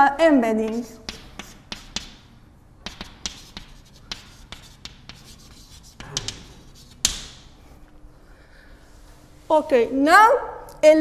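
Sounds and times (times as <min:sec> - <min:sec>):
chalk tapping and scraping on chalkboard: 0:00.6 - 0:07.6.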